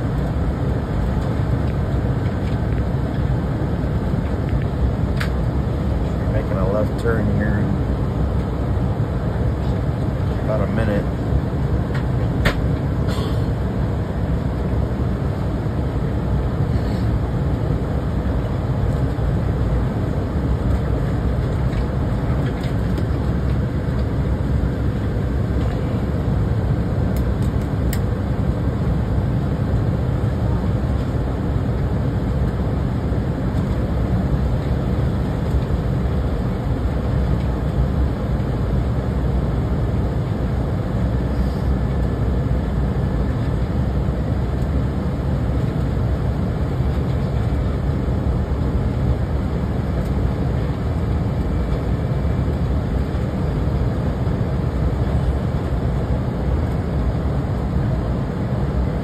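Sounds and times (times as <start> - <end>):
jet engines roaring: 0.0 - 59.0
rushing air: 14.9 - 22.1.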